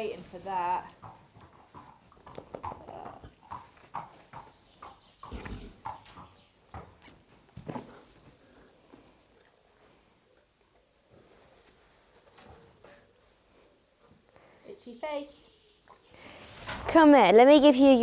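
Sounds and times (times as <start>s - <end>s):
hooves knocking: 0.4s - 8.4s.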